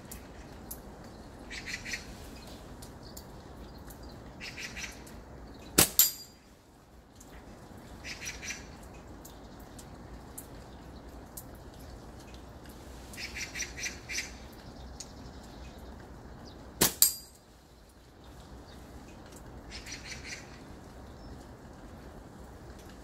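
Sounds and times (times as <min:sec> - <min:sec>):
birds chirping: 0:00.0 - 0:06.4, 0:13.1 - 0:21.8
rain hissing: 0:00.0 - 0:23.0
slingshot cracks: 0:05.8 - 0:06.3, 0:16.8 - 0:17.4.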